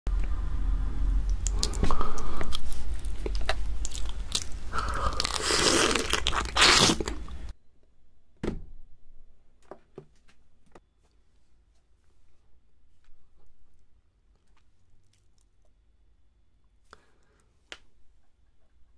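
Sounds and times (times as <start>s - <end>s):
biting crunching and chewing: 1.3s - 7.5s.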